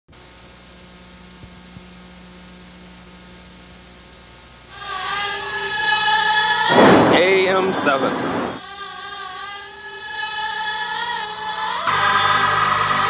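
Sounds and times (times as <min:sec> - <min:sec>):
electrical hum: 0:00.1 - 0:13.0.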